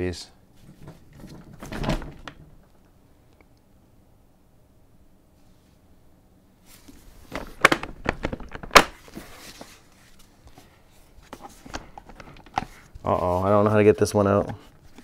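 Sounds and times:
plastic car seat clicks and knocks: 0:07.4 - 0:08.9.

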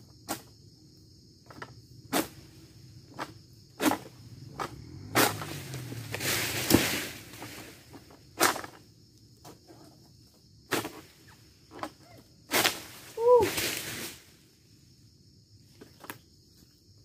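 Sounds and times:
fronds rustling: 0:02.2 - 0:09.2, 0:10.7 - 0:14.6.

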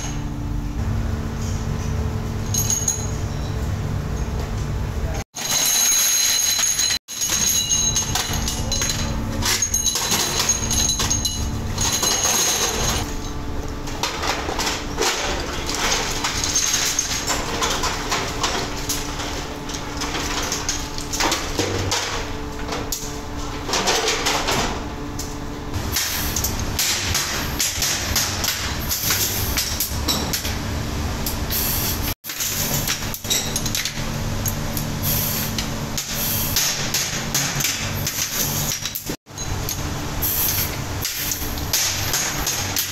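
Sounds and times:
metal parts clinking by hand: 0:02.4 - 0:03.6, 0:05.4 - 0:13.4, 0:32.3 - 0:35.7
metal parts clattering onto table: 0:05.4 - 0:13.1.

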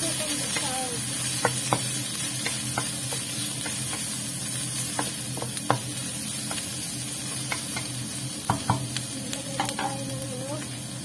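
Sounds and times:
food sizzling in a wok: 0:00.0 - 0:11.0
spatula knocking against pan: 0:01.4 - 0:04.1, 0:04.9 - 0:06.6, 0:08.5 - 0:08.9, 0:09.6 - 0:10.0.

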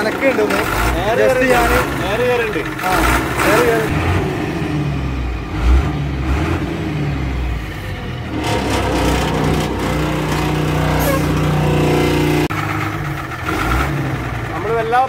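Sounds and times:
bus diesel engine revving: 0:00.0 - 0:15.0.

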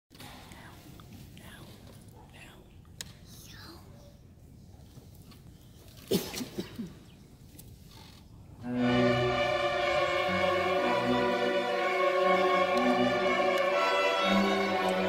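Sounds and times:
string orchestra playing: 0:08.6 - 0:15.0.

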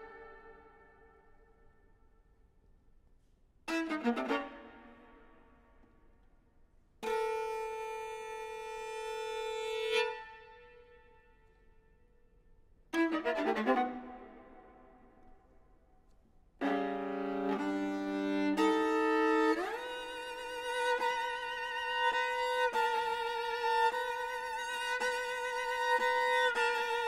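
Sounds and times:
solo viola playing: 0:00.0 - 0:01.4, 0:03.6 - 0:05.6, 0:07.0 - 0:11.6, 0:12.9 - 0:15.4, 0:16.6 - 0:27.0.

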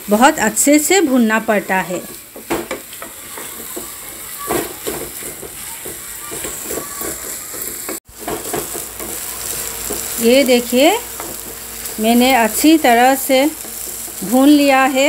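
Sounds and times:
minced meat sizzling in a pan: 0:00.0 - 0:15.0
wooden spatula scraping pan: 0:01.6 - 0:10.2.

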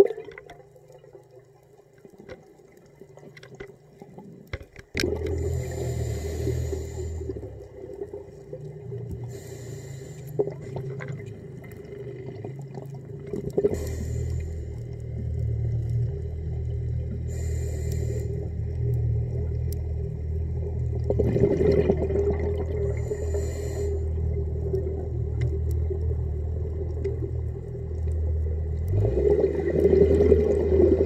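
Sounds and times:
diver exhaling bubbles: 0:05.0 - 0:09.7, 0:10.4 - 0:15.7, 0:20.6 - 0:27.5, 0:28.7 - 0:31.0
regulator hiss: 0:05.4 - 0:07.5, 0:09.2 - 0:10.6, 0:13.7 - 0:15.0, 0:17.1 - 0:18.8, 0:22.9 - 0:24.4.

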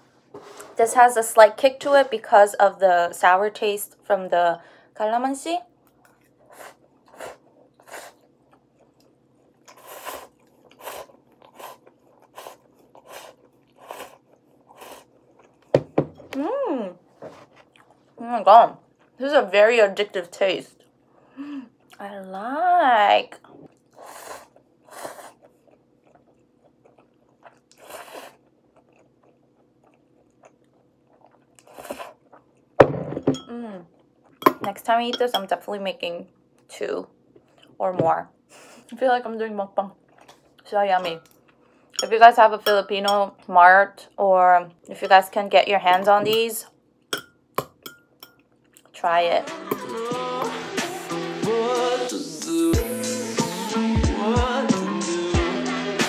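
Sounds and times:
person slurping and chewing noodles: 0:06.1 - 0:15.7, 0:23.7 - 0:32.6
person slurping noodles: 0:09.7 - 0:15.1, 0:27.7 - 0:28.4.

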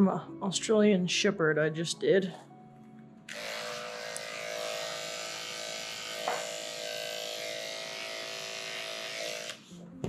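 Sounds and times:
electric clippers buzzing: 0:03.3 - 0:09.7.

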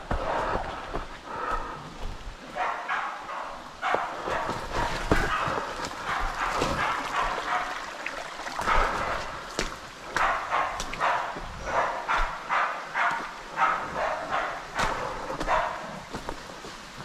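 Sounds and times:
footsteps on stones: 0:00.0 - 0:02.5, 0:03.9 - 0:07.6, 0:08.6 - 0:12.4, 0:14.8 - 0:17.0
dogs barking: 0:00.0 - 0:17.0.

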